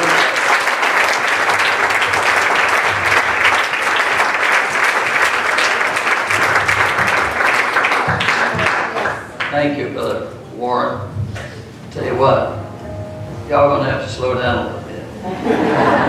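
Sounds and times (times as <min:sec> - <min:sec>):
congregation applauding: 0:00.0 - 0:10.1.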